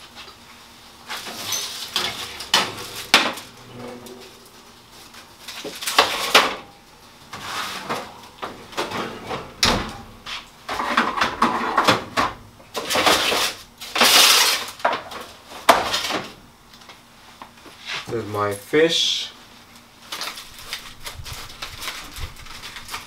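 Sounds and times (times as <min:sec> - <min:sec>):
aluminium foil crinkling: 0:19.7 - 0:23.0.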